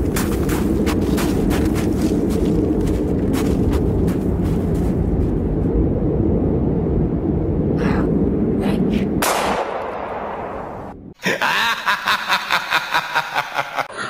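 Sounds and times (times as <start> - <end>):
loud low rumble: 0.0 - 11.2.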